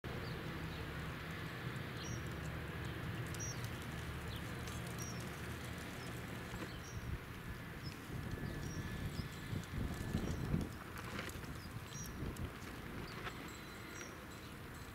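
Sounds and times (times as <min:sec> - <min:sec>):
distant helicopter rotors: 0:00.1 - 0:14.9
small birds chirping: 0:00.1 - 0:14.9.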